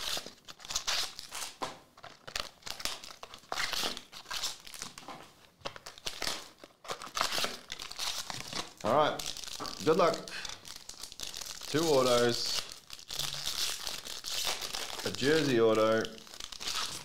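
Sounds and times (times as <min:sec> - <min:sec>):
wrapper crinkling: 0:00.0 - 0:17.0.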